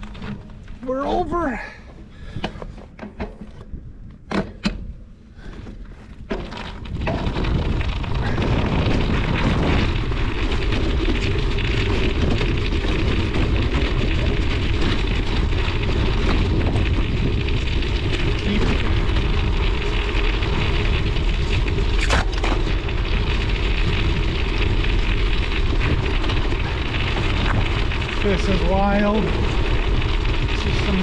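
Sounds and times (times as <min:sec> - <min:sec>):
studded tire rumbling over ice: 0:00.0 - 0:04.1, 0:04.9 - 0:31.0
ice cracking sharply: 0:06.8 - 0:31.0.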